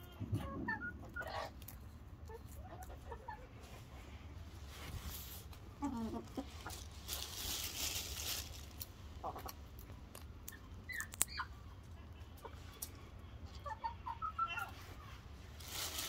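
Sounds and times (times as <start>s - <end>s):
chickens calling softly: 0.0s - 16.0s
rustling in grass: 4.5s - 9.1s, 15.5s - 16.0s.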